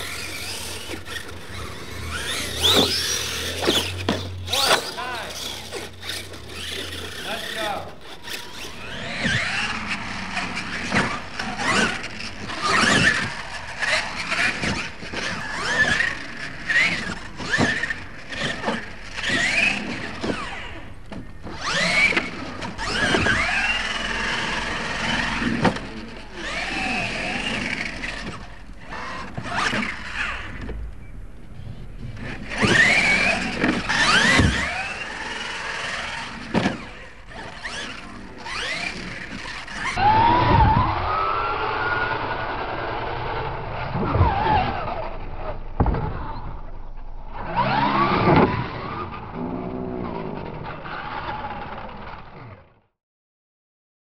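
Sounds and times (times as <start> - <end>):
toy trucks landing with thuds: 0.0 - 13.6, 32.4 - 41.2
electric motors whining: 0.0 - 52.6
tyres spinning on dirt: 0.0 - 52.6.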